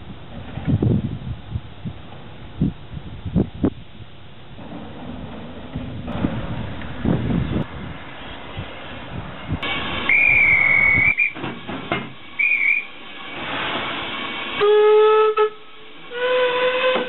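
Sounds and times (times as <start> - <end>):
steam hissing: 6.2 - 17.0
steam locomotive whistle: 9.6 - 11.5, 12.3 - 17.0
high whistle: 10.0 - 11.4, 12.4 - 13.0, 14.6 - 17.0.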